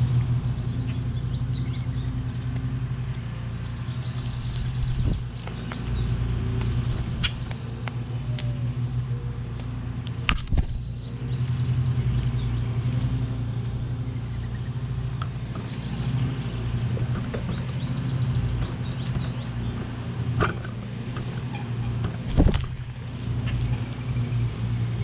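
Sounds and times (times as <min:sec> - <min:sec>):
low engine hum: 0:00.0 - 0:25.0
bird chirps: 0:00.3 - 0:02.3, 0:03.6 - 0:07.4, 0:14.0 - 0:19.9.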